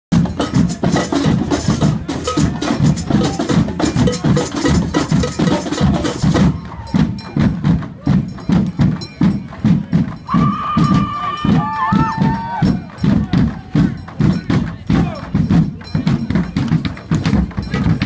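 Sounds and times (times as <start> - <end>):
sharp clicking high drum strikes: 0.1 - 18.0.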